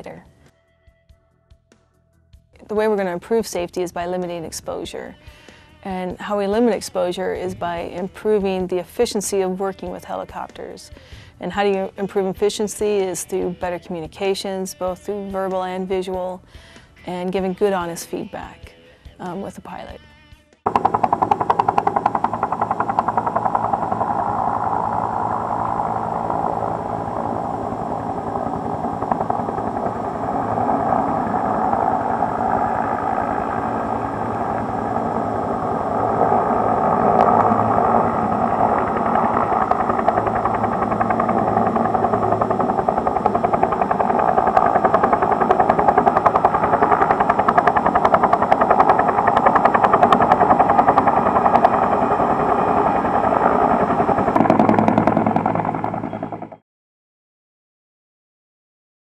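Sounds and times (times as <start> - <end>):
helicopter engine and rotor: 20.7 - 56.6.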